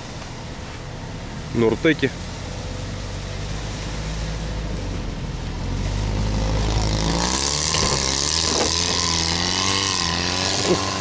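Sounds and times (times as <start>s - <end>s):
vehicle engine revving: 1.0s - 11.0s.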